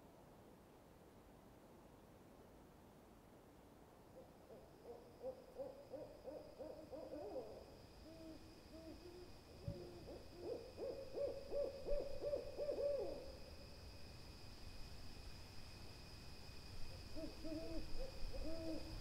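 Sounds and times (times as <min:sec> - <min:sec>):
owl hooting: 0:04.2 - 0:13.4, 0:17.1 - 0:19.0.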